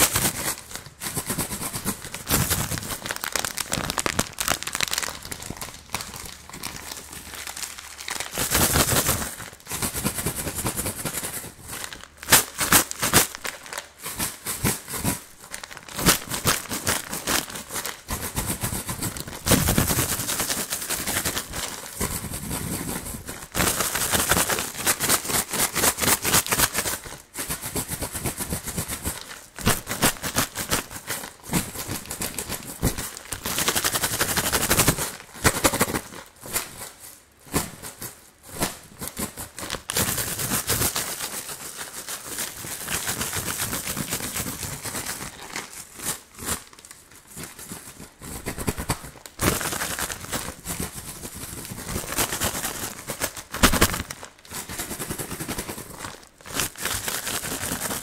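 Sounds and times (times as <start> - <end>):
candy rattling: 0.0 - 9.7, 11.5 - 14.4, 15.1 - 26.8, 48.5 - 58.0
plastic bag crinkling: 0.0 - 9.7, 11.3 - 14.4, 15.0 - 27.2, 29.0 - 37.4, 38.4 - 58.0.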